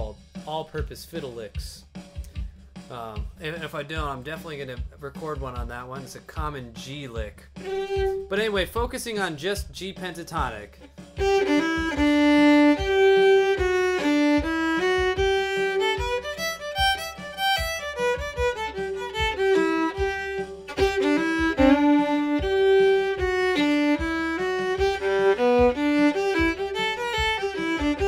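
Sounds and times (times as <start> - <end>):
solo fiddle playing bluegrass: 7.6 - 8.6, 10.7 - 28.0.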